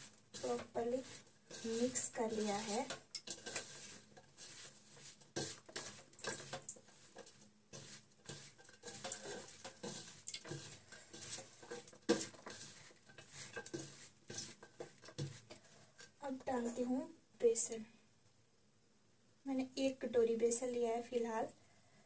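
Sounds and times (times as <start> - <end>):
hand mixing food in bowl: 0.0 - 16.9.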